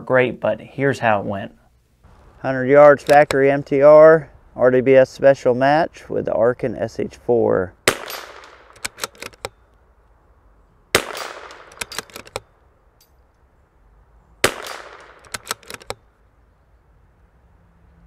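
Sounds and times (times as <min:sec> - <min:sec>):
rifle bolt clicking: 0:03.0 - 0:03.4, 0:07.9 - 0:09.6, 0:11.0 - 0:13.1, 0:14.5 - 0:16.0
rifle shots with echo: 0:07.8 - 0:09.4, 0:10.9 - 0:12.4, 0:14.4 - 0:15.8.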